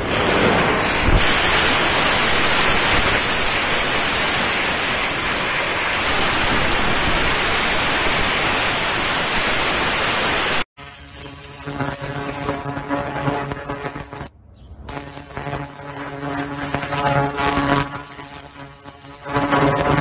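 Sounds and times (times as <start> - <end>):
compressed air blow gun hissing: 0.7 - 10.7.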